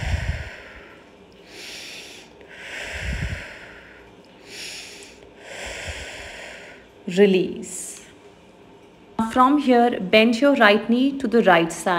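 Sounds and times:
woman breathing deeply: 0.0 - 7.0.

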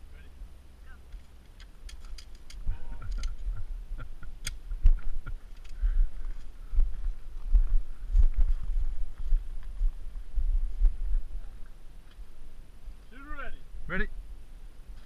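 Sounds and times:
footsteps crunching on gravel: 6.0 - 12.2.

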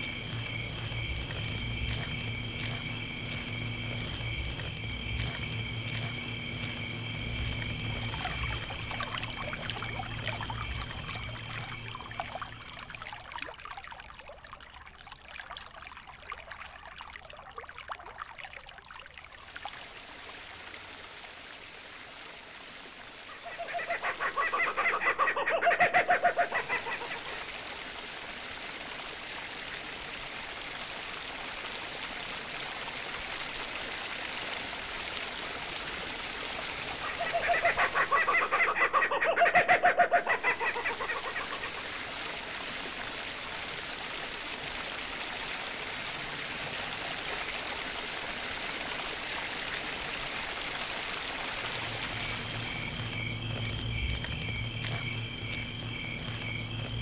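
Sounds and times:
trickling water: 0.0 - 39.0, 39.6 - 57.0
bird call of rapid pulses: 23.3 - 27.4.

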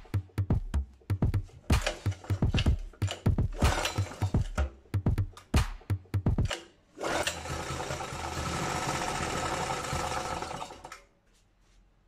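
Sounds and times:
generator engine running: 6.4 - 10.7.

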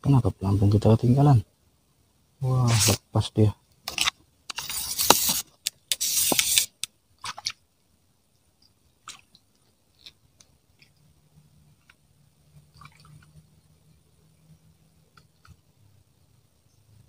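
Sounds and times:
faint low hum: 6.8 - 17.0.

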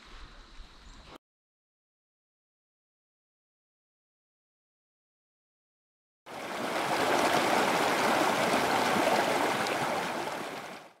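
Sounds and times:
running water rushing: 6.3 - 11.0.

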